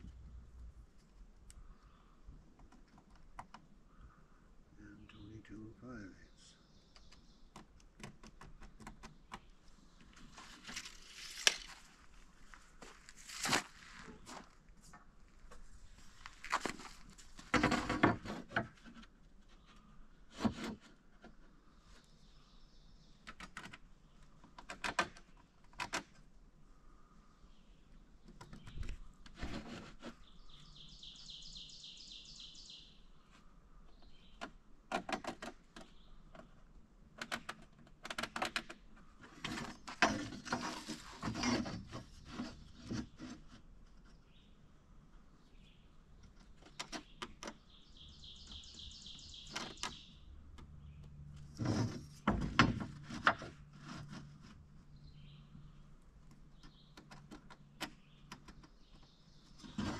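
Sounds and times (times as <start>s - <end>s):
birds chirping: 1.5s - 7.7s, 30.1s - 34.6s, 44.1s - 51.3s, 54.9s - 59.9s
tools knocking and scraping on wood: 16.4s - 19.2s, 50.6s - 54.6s.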